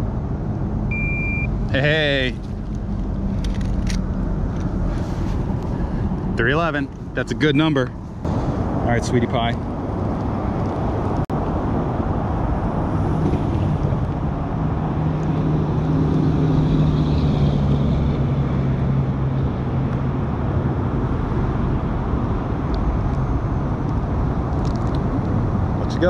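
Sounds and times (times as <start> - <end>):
engine low hum: 0.0 - 26.0
road traffic rushing: 0.0 - 26.0.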